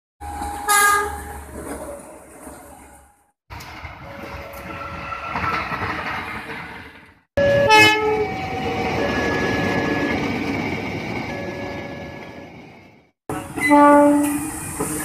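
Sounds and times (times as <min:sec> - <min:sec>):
diesel locomotive engine: 0:00.2 - 0:15.0
train wheel noise: 0:00.2 - 0:15.0
locomotive horn: 0:00.6 - 0:01.4, 0:07.4 - 0:08.4, 0:13.6 - 0:14.5.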